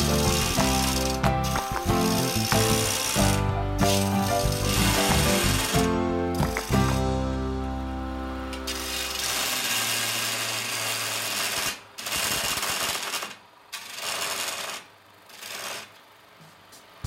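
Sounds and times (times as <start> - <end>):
chisel cutting wood on lathe: 0.0 - 7.0, 8.5 - 11.6
background music: 0.0 - 9.5.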